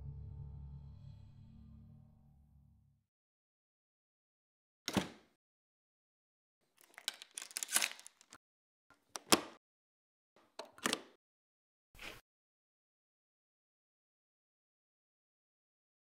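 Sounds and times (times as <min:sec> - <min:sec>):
door chain lock click: 0:10.6 - 0:11.1.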